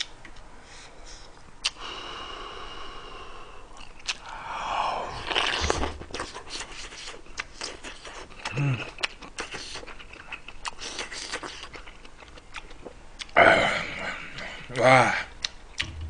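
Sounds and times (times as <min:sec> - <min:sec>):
wet chewing clicks: 0:03.8 - 0:04.4.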